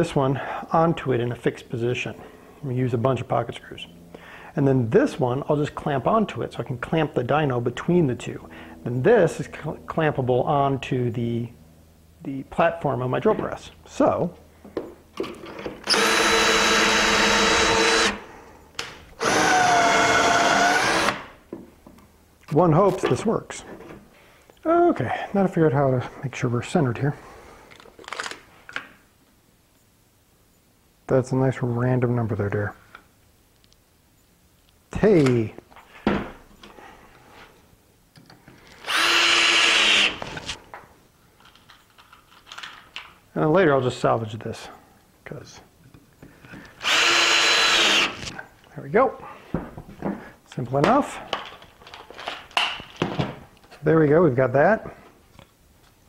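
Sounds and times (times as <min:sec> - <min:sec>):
cordless drill driving screws: 0:15.8 - 0:18.2, 0:19.2 - 0:21.3, 0:38.8 - 0:40.6, 0:46.8 - 0:48.3.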